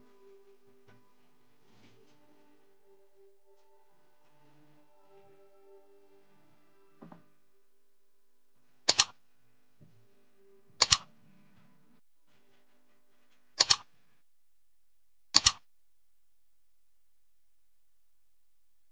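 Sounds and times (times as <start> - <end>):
mouse double click: 8.9 - 9.1, 10.8 - 11.1, 13.6 - 13.9, 15.4 - 15.6.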